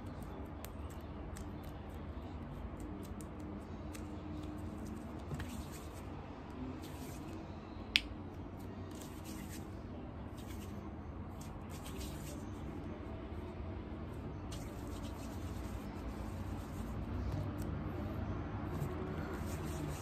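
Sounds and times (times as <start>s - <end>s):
clay squishing: 0.0s - 12.8s.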